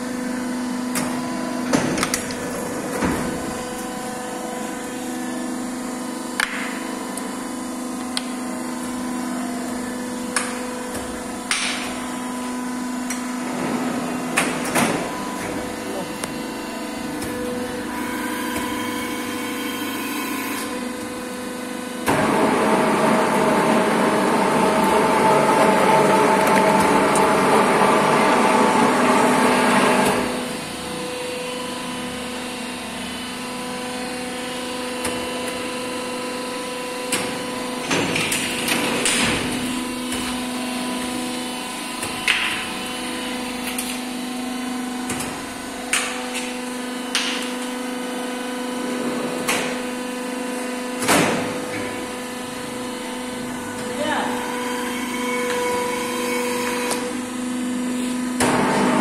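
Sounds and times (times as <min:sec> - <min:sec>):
injection moulding machine humming: 0:00.0 - 0:59.0.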